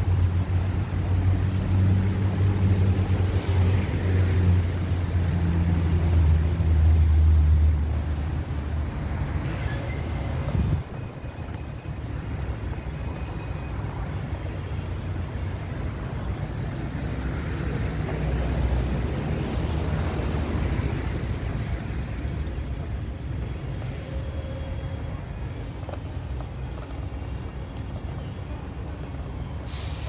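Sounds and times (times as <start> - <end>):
distant city traffic rumble: 0.0 - 30.0.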